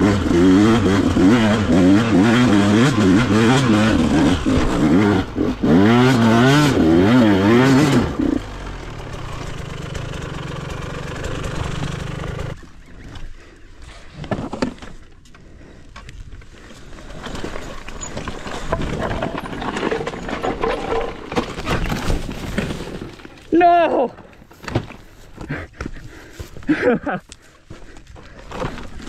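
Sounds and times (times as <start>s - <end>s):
dirt bike engine revving: 0.0s - 12.8s.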